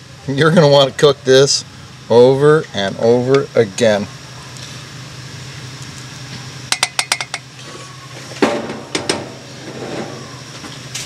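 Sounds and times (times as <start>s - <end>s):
pot and spoon clanking down: 6.7s - 7.5s.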